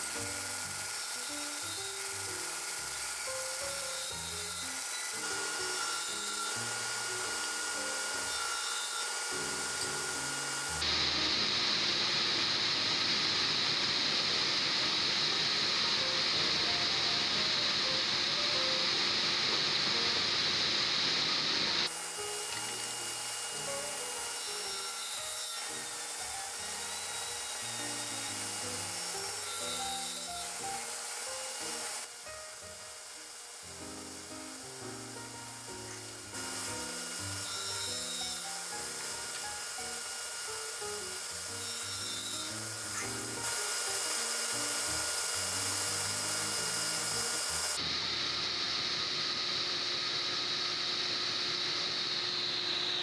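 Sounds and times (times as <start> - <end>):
table saw cutting wood: 0.0 - 53.0
background music with melody: 26.2 - 47.2.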